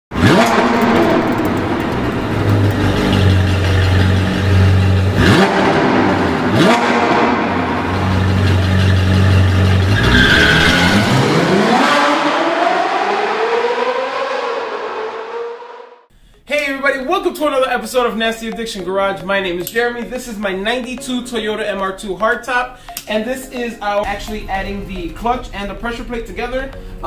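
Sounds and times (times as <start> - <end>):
sports car engine revving: 0.1 - 16.1.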